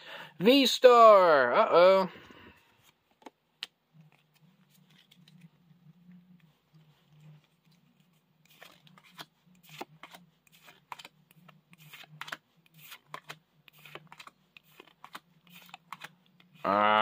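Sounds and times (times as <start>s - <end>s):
trading cards flipped by hand: 2.7s - 5.6s, 6.3s - 16.6s.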